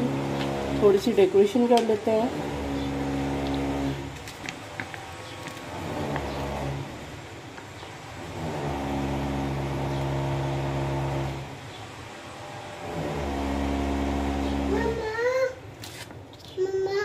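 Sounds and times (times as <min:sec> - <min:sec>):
motor humming: 0:00.0 - 0:15.5.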